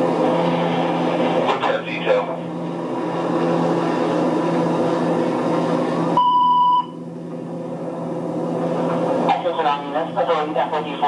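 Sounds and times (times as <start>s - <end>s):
radio hiss and hum: 1.4s - 2.5s, 9.2s - 11.0s
high alert-tone beep: 6.2s - 7.0s.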